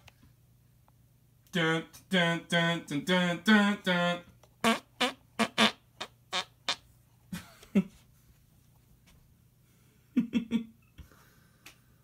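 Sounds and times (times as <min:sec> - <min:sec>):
person making fart noises: 0:04.6 - 0:06.8.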